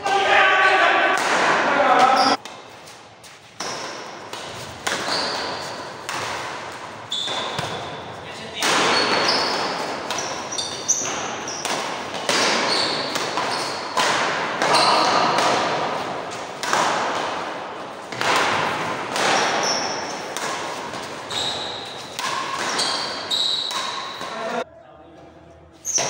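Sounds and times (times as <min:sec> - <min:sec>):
shoes squeaking on court floor: 0:01.9 - 0:15.4, 0:19.1 - 0:24.6, 0:25.8 - 0:26.0
racket striking shuttlecock: 0:03.6 - 0:07.9, 0:08.6 - 0:24.4.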